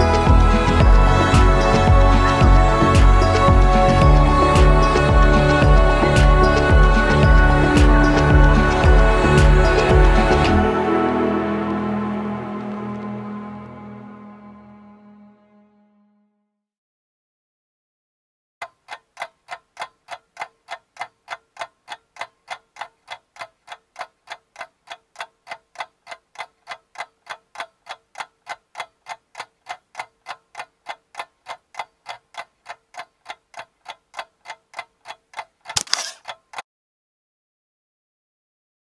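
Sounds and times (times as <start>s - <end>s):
clock-like ticking: 0.0s - 10.7s, 18.6s - 36.6s.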